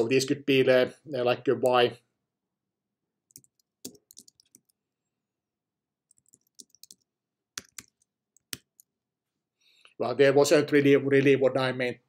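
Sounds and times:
computer keyboard typing: 0:03.3 - 0:04.8, 0:06.1 - 0:08.9.

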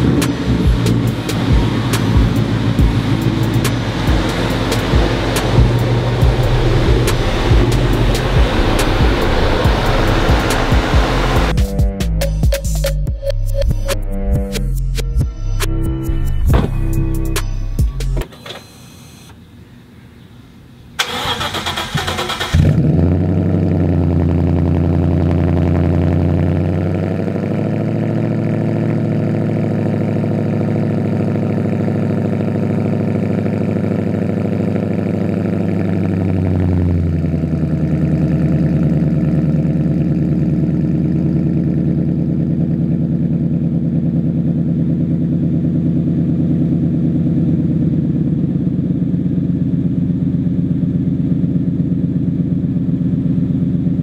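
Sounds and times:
car engine starting and idling: 0:00.0 - 0:19.8, 0:20.6 - 0:54.0.

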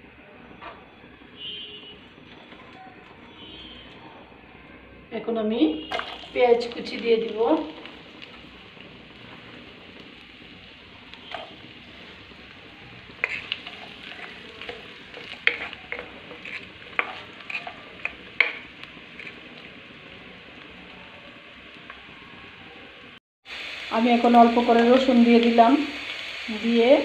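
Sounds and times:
onions sizzling in oil: 0:05.9 - 0:27.0
wooden spatula scraping pan: 0:13.2 - 0:19.6.

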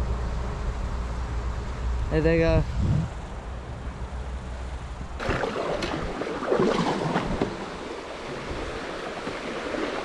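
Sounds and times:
river water rushing and splashing: 0:04.5 - 0:10.0.

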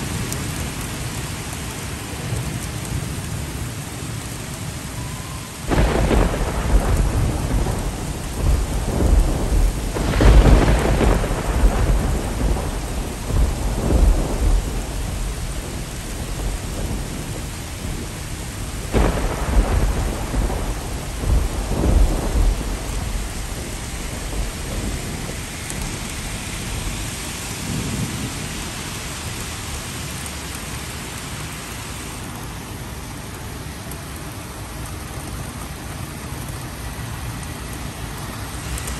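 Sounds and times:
thunder rumbling: 0:00.0 - 0:31.2
steady rain: 0:00.0 - 0:38.9.

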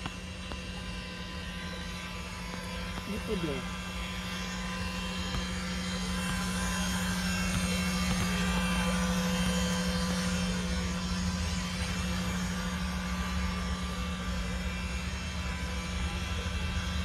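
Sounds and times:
model boat motor humming: 0:00.0 - 0:17.0.

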